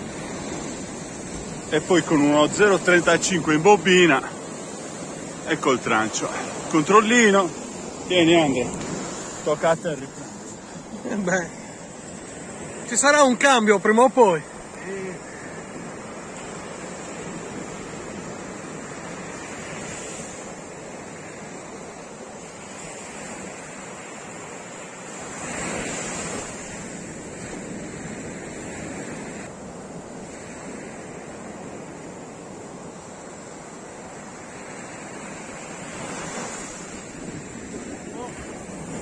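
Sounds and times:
waves breaking on beach: 0.0s - 39.0s.

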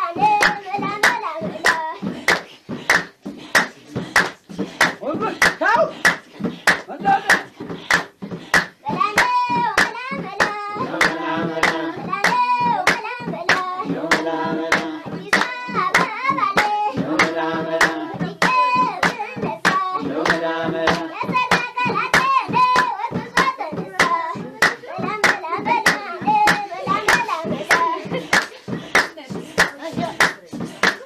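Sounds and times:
hand claps: 0.0s - 31.0s
voices singing: 0.0s - 31.0s.

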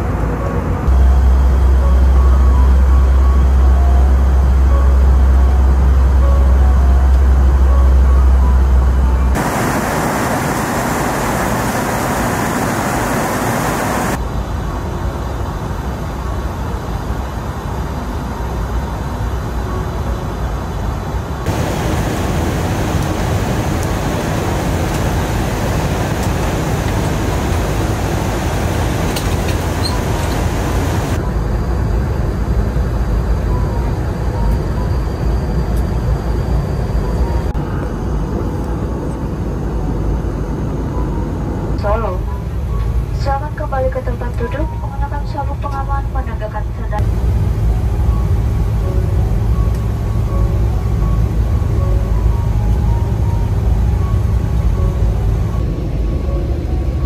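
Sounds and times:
airplane cabin engine rush: 0.0s - 57.0s
deep hum: 0.4s - 14.2s, 46.6s - 57.0s.

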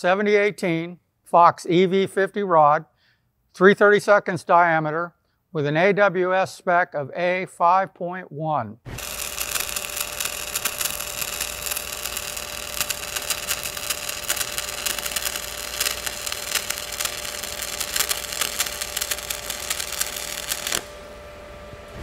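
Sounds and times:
welding arc crackling: 8.9s - 21.1s
steady hum: 8.9s - 22.0s.

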